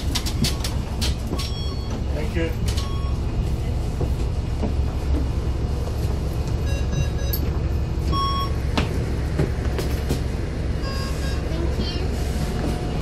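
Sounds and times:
bus engine low rumble: 0.0 - 13.0
card reader beeps: 2.8 - 3.2, 6.6 - 7.5, 8.1 - 8.6.

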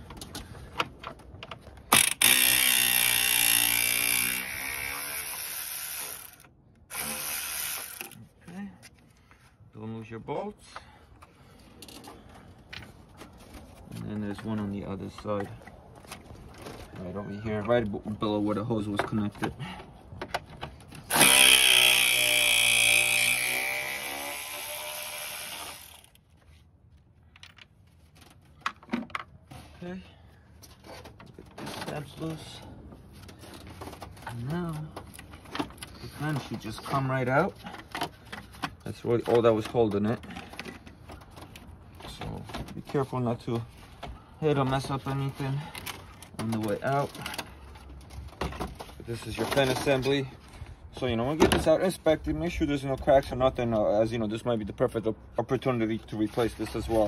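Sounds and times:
electric ratchet motor spinning: 1.9 - 8.2, 21.1 - 26.2.

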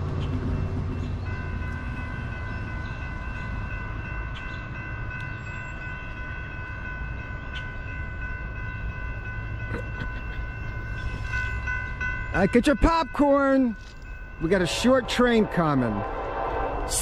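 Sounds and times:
train rumble: 0.0 - 17.0
distant locomotive horn: 14.6 - 17.0.

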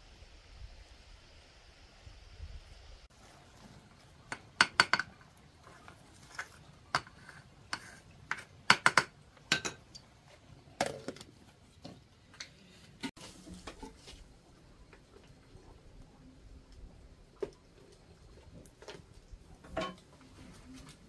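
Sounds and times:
utensil clinking against metal pot: 6.9 - 10.0.

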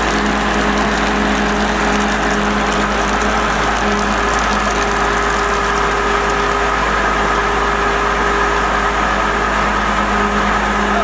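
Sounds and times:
drilling rig engine running: 0.0 - 11.0.

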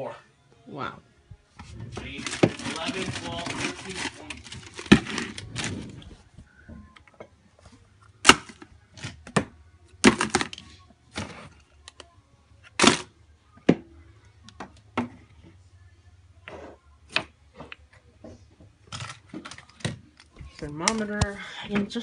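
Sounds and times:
plastic bag rustling: 1.6 - 6.4.

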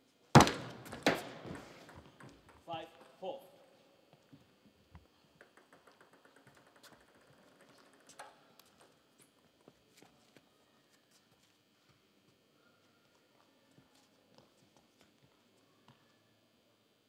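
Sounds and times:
table tennis ball taps: 0.4 - 3.2.

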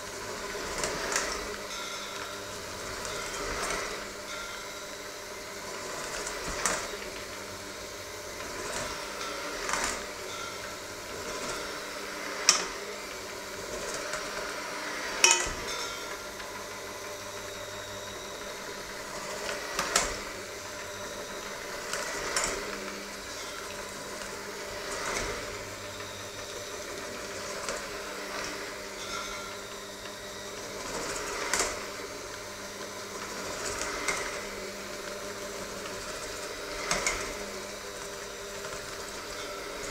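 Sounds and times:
electric hand mixer running: 0.0 - 39.9
beaters clanking against bowl: 15.2 - 16.2.

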